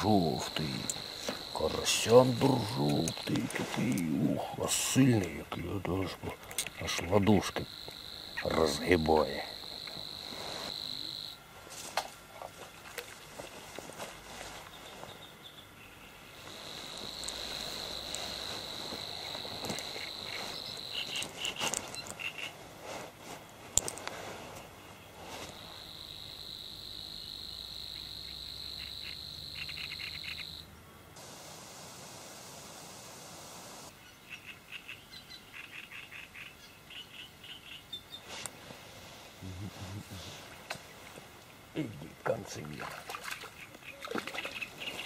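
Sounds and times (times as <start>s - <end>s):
cricket trilling: 0.0s - 11.5s, 14.8s - 22.6s, 25.4s - 30.7s.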